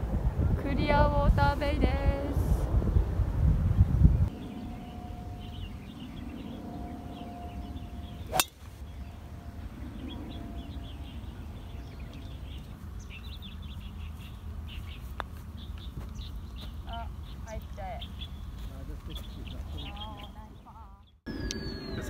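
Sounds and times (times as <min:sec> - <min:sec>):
low outdoor rumble: 0:00.0 - 0:22.0
birds chirping: 0:03.7 - 0:22.0
golf club striking ball: 0:08.3 - 0:08.7.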